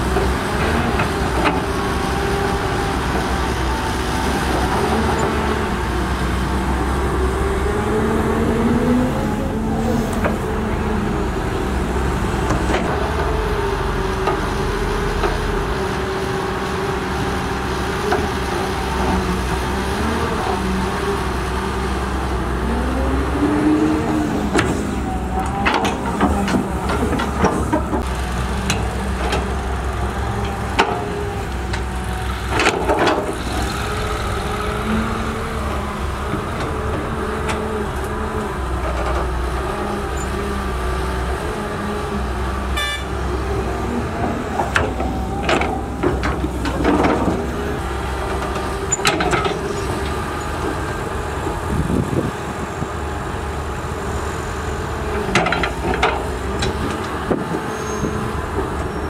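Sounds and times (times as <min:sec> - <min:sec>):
diesel excavator engine running: 0:00.0 - 0:59.0.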